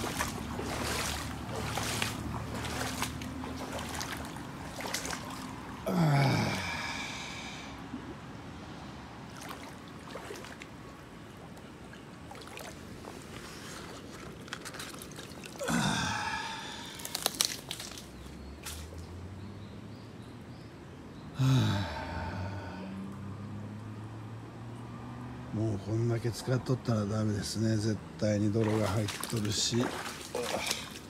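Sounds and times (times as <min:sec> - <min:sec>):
squelching in wet mud: 0:00.0 - 0:07.6, 0:09.3 - 0:19.2, 0:28.4 - 0:31.0
person sighing: 0:05.8 - 0:08.0, 0:15.6 - 0:17.2, 0:21.4 - 0:23.0.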